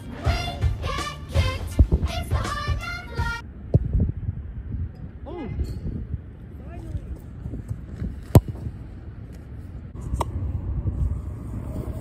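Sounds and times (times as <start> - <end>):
low steady rumble: 0.0 - 12.0.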